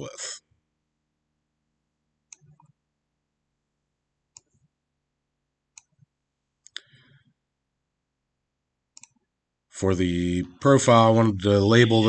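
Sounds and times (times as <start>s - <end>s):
computer mouse clicks: 2.3s - 2.8s, 4.3s - 4.7s, 5.7s - 7.0s, 8.9s - 9.3s.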